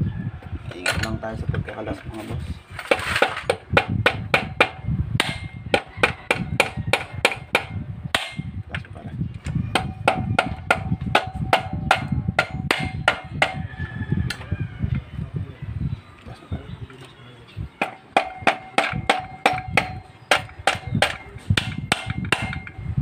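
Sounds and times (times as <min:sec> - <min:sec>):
mallet knocking on engine case: 0:02.9 - 0:08.5, 0:09.8 - 0:13.6, 0:17.8 - 0:22.8.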